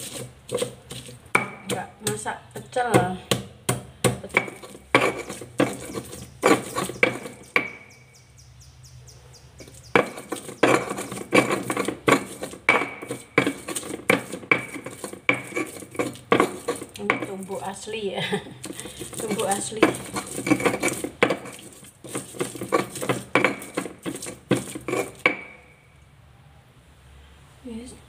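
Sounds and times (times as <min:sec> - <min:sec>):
stone pestle grinding in mortar: 0:00.0 - 0:08.0, 0:09.6 - 0:25.7.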